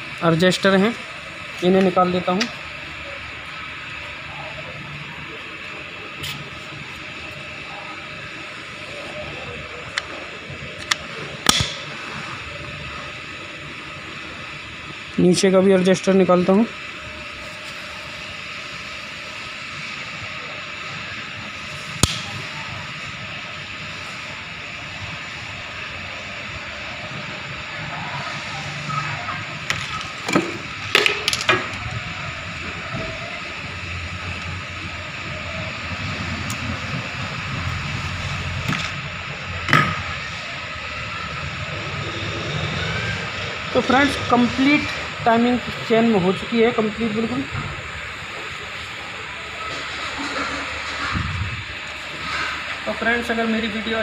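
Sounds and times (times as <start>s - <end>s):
steady mechanical hum: 0.0s - 54.0s
steady whirring: 0.0s - 54.0s.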